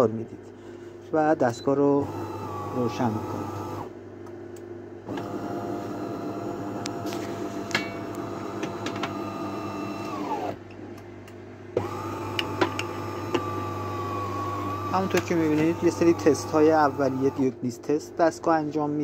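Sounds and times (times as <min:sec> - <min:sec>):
espresso machine motor whining: 0:01.8 - 0:03.9, 0:05.1 - 0:10.6, 0:11.8 - 0:17.5.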